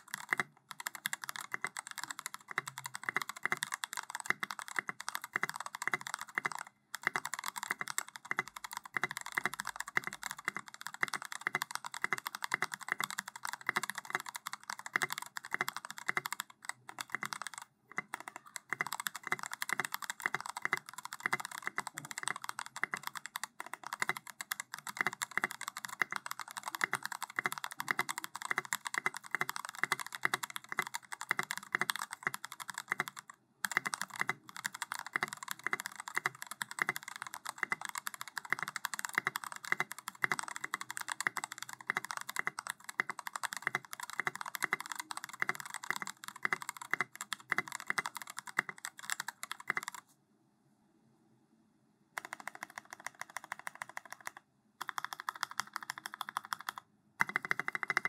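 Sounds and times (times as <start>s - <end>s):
fast mechanical keyboard typing: 0.0s - 50.0s, 52.2s - 58.0s.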